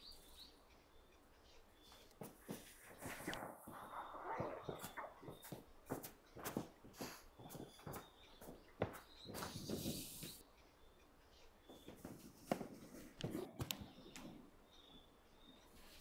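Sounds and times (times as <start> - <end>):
footsteps on sheet metal: 1.9 - 10.4, 11.7 - 14.0.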